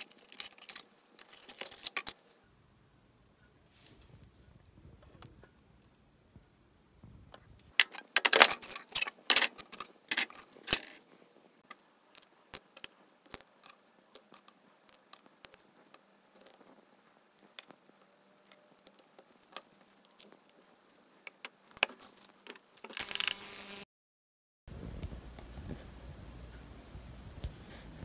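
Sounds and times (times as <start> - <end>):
small metal parts clinking: 0.0 - 2.4, 7.7 - 11.0.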